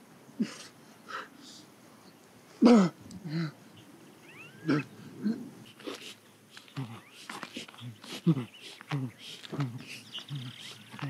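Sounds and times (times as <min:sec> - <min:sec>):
faint high chirps: 0:03.7 - 0:05.9.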